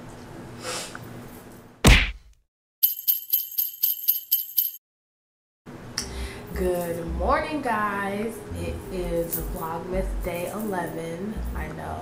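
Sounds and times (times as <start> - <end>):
jingle bells shaken: 2.8 - 4.8, 6.5 - 7.1, 8.8 - 11.7.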